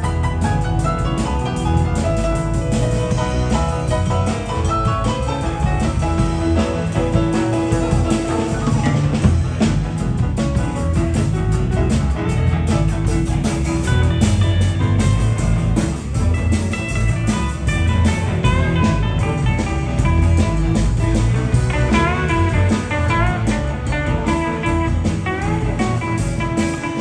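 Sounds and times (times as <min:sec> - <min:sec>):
bass: 0:00.0 - 0:27.0
drum kit beat: 0:00.0 - 0:27.0
electric guitars: 0:00.0 - 0:27.0
keyboard piano: 0:00.0 - 0:27.0.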